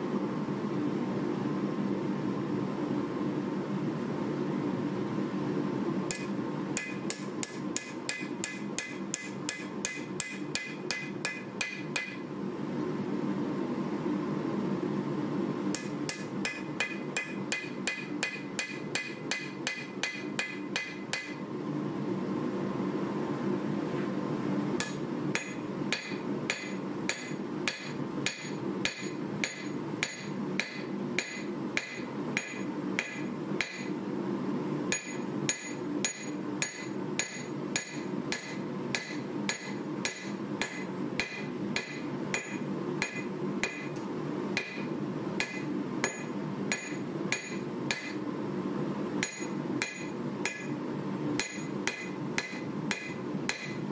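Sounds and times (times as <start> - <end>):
steady low hum: 0.0 - 53.9
hammer striking blade on anvil: 6.1 - 12.2, 15.7 - 21.4, 24.8 - 33.9, 34.9 - 44.0, 44.6 - 48.2, 49.2 - 50.8, 51.4 - 53.8.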